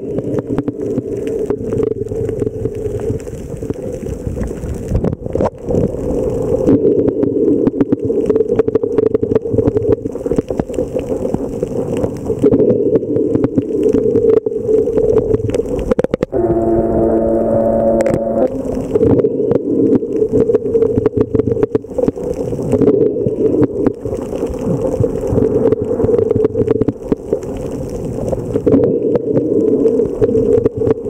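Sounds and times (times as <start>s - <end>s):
clicks and crackles: 0.0s - 16.4s, 18.0s - 31.0s
low underwater drone: 16.3s - 21.2s
steady ringing tones: 16.4s - 19.1s.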